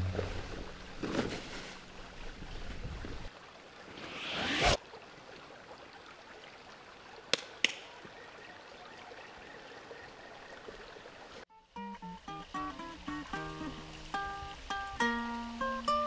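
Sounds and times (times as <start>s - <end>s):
rising whoosh: 3.9s - 4.8s
faint steady hiss: 11.4s - 16.0s.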